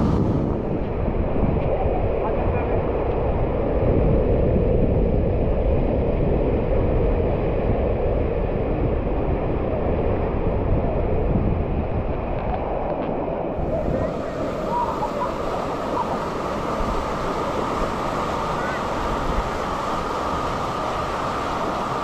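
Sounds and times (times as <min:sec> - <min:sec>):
wind rumble on microphone: 0:00.0 - 0:22.0
water rushing down a slide: 0:13.6 - 0:22.0.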